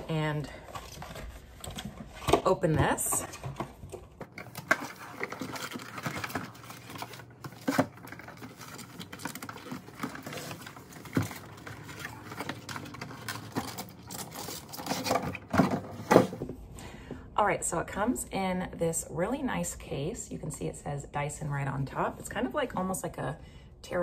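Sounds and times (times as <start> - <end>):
packaging rustling and scraping: 0.0 - 16.6.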